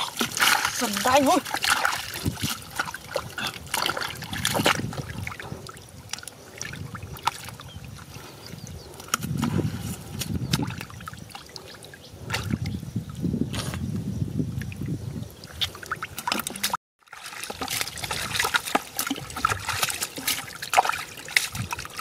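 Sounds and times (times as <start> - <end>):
water drips: 0.0 - 8.0, 14.6 - 22.0
splashing in muddy water: 0.0 - 13.8, 15.4 - 22.0.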